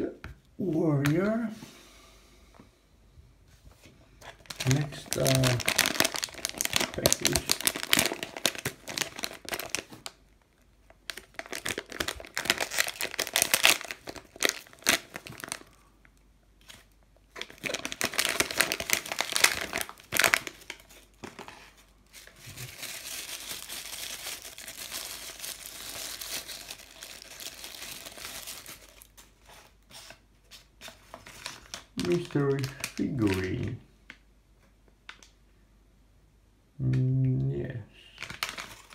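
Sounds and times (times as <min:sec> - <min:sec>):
thin plastic bag rustling: 0:04.3 - 0:10.1, 0:11.0 - 0:15.8, 0:16.7 - 0:30.1, 0:30.9 - 0:33.7, 0:38.2 - 0:38.9
foil bag crinkling and tearing: 0:04.3 - 0:10.2, 0:10.9 - 0:15.8, 0:16.6 - 0:29.4, 0:30.9 - 0:33.8, 0:38.1 - 0:38.9.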